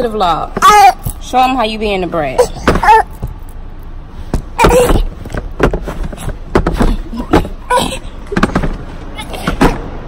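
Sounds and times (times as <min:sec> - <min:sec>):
knocks and bumps: 0:02.5 - 0:03.5, 0:04.3 - 0:10.0.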